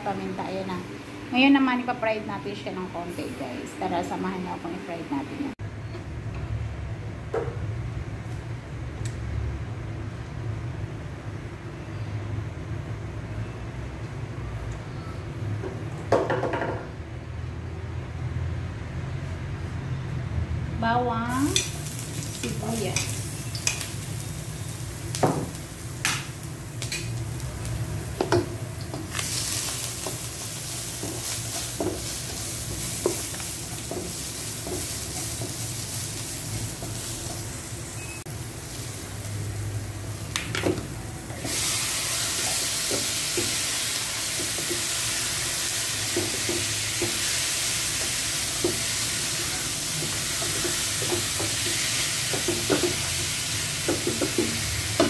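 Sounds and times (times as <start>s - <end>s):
garlic and onion sizzling in oil: 21.2s - 55.0s
meat frying in a hot pan: 21.3s - 40.5s, 41.4s - 55.0s.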